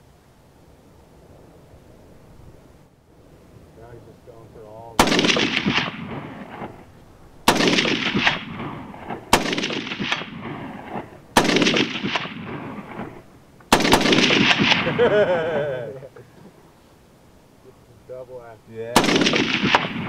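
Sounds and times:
rifle shots with echo: 5.0 - 15.3, 18.9 - 20.0.

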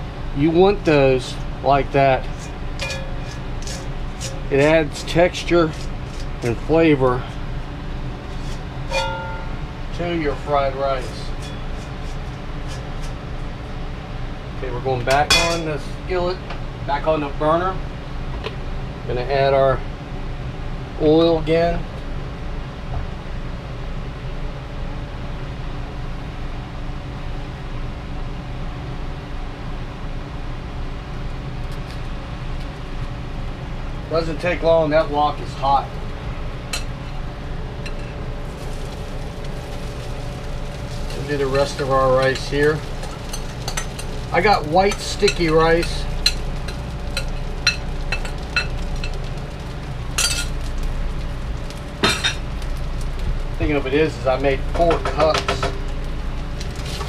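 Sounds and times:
fan running with low hum: 0.0 - 57.0
bowl scraping wok: 2.2 - 7.5, 8.2 - 9.6, 10.9 - 13.2, 37.8 - 49.2
glass bowl clinking on wok: 8.9 - 9.6, 15.3 - 15.6.

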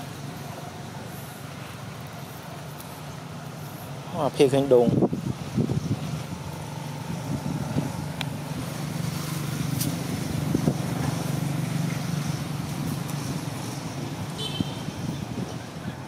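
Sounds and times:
low engine hum: 0.0 - 16.0.

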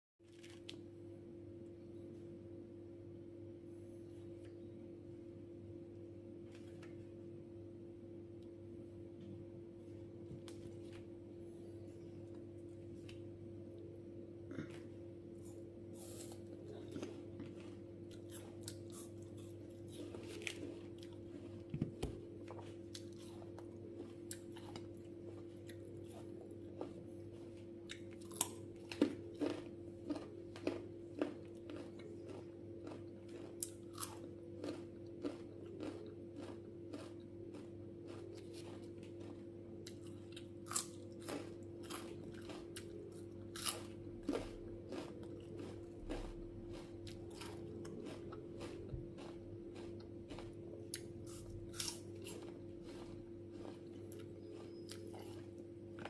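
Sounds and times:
crunching and chewing apple: 0.3 - 0.9, 14.5 - 56.0.

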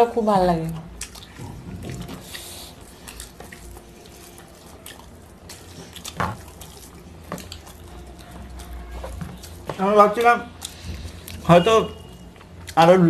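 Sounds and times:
fingers mixing food on metal plates: 0.4 - 13.0
open-mouthed chewing: 0.7 - 12.9.

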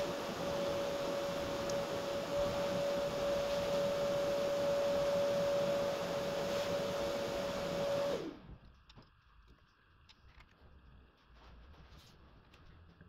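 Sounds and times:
electric motor whirring: 0.0 - 8.4.

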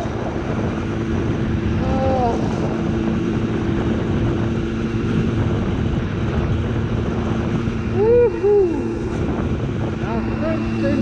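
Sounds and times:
moped engine running: 0.0 - 11.0
wind rush on microphone: 0.0 - 11.0
person whooping: 8.0 - 9.1.

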